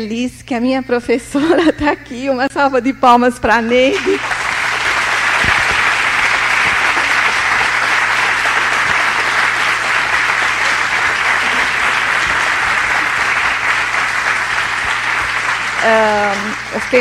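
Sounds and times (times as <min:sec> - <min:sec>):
crowd applauding: 0:03.9 - 0:17.0.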